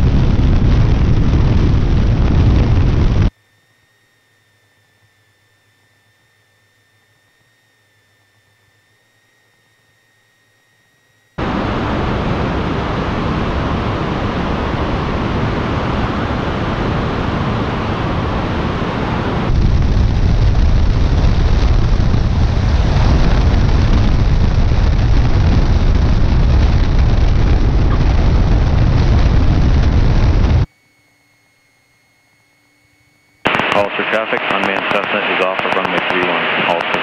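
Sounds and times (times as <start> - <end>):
wind rushing over camera: 0.0 - 3.3, 11.4 - 30.7
plane rolling along runway: 0.0 - 30.7, 33.4 - 37.0
airplane engine and propeller: 4.3 - 30.7, 33.4 - 37.0.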